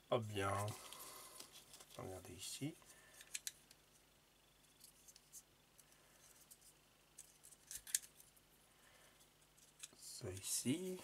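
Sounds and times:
plastic parts clicking: 3.1 - 3.8, 7.2 - 8.3.

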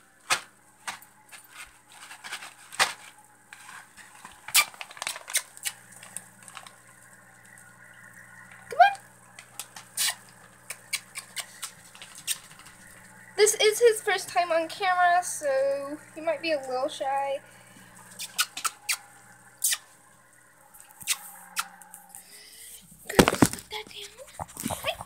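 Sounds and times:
low steady hum: 0.0 - 25.0
objects clicking and knocking: 23.1 - 25.0.

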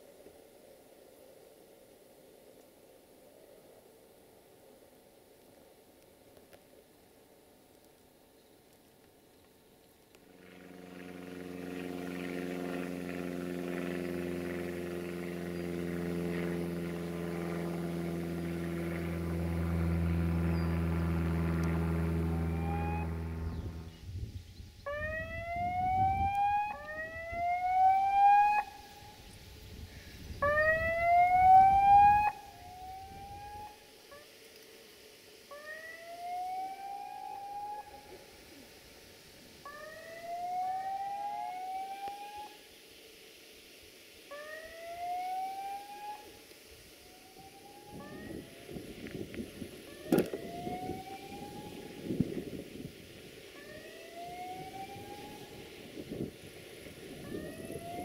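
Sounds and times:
diesel train engine hum: 10.2 - 25.0
repeating rising tone: 19.8 - 24.2.

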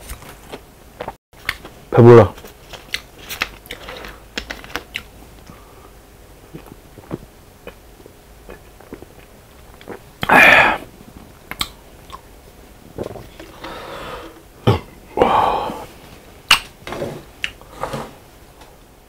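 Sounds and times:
man burping loudly: 14.6 - 15.8.

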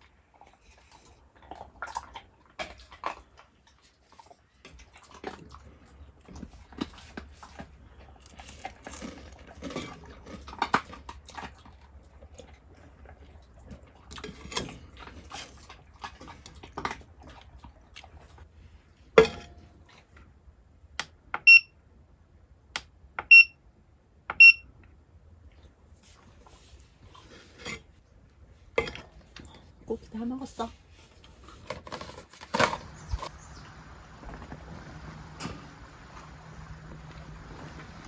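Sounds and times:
high-pitched electronic beeps: 21.5 - 21.7
handling clicks and scrapes: 26.0 - 28.0, 30.9 - 33.6.

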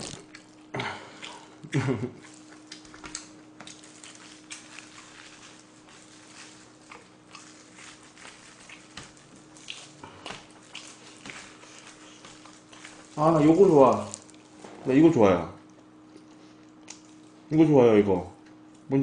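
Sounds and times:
plastic gloves rustling: 0.0 - 0.6, 2.2 - 15.3
wet tearing and chewing clicks: 0.0 - 14.6, 15.6 - 17.4
faint steady hum: 0.0 - 19.0.

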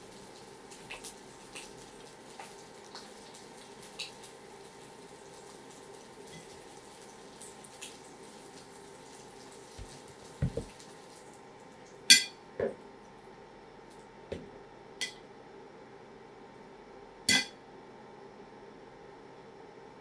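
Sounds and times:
dull thumps: 10.4 - 10.7.

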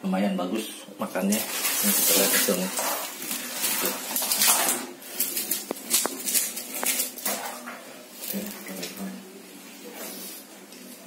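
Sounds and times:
net rustling: 1.3 - 8.6
wet fish slapping on tiles: 1.3 - 9.0.

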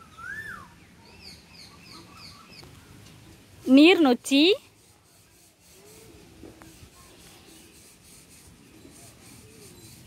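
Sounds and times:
faint rubbing and handling noise: 2.6 - 10.0.

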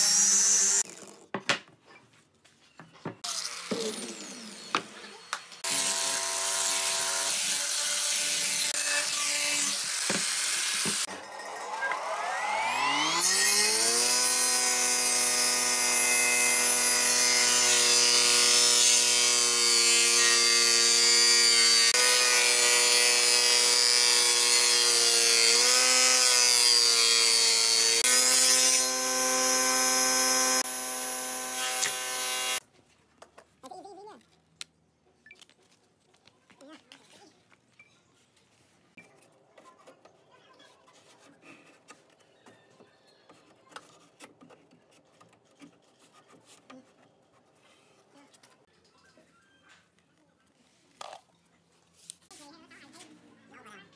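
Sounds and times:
angle grinder sanding wood: 3.3 - 32.6.

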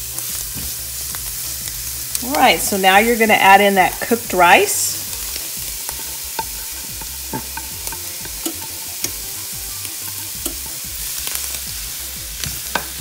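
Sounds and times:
food sizzling in skillet: 0.0 - 13.0
spatula scraping bowl: 5.0 - 11.4.

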